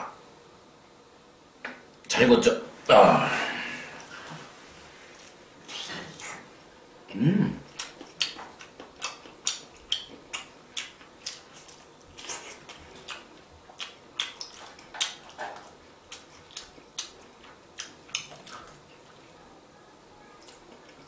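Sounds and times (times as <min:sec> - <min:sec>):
wet chewing and lip smacks: 0:07.7 - 0:19.2.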